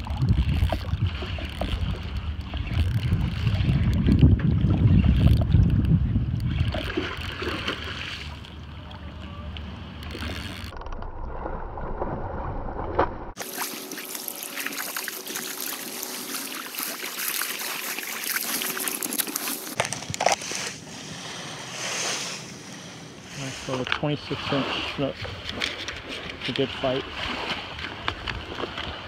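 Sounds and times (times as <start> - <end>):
wind rumble on microphone: 0.0 - 7.9
water sloshing and lapping: 0.0 - 29.0.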